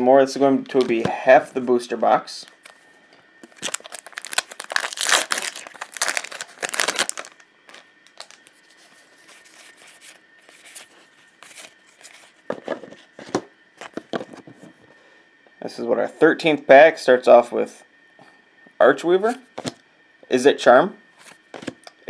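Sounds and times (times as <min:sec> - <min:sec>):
foil wrapper tearing and crinkling: 0:03.4 - 0:08.6
cards rustling: 0:03.4 - 0:13.1.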